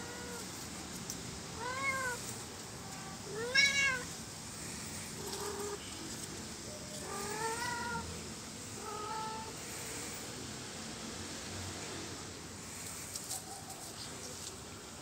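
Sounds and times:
kitten meowing: 3.3 - 4.1.

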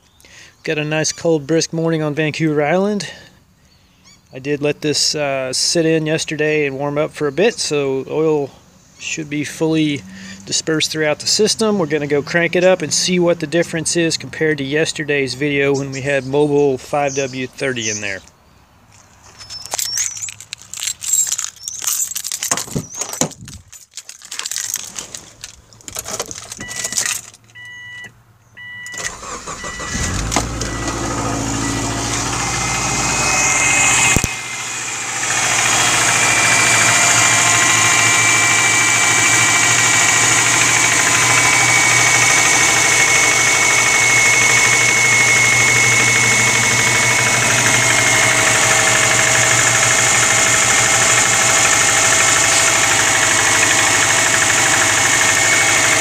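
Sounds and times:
engine starter cranking: 19.6 - 28.0, 28.6 - 56.0
car engine idling: 28.9 - 56.0.

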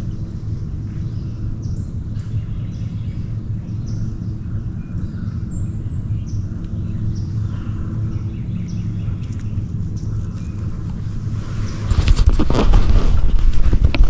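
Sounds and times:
bird chirps: 0.0 - 10.8
low engine drone: 0.0 - 14.0.

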